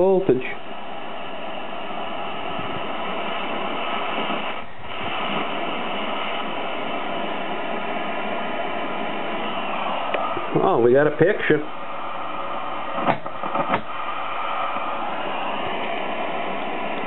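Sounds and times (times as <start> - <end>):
static hiss from television speaker: 0.0 - 17.0.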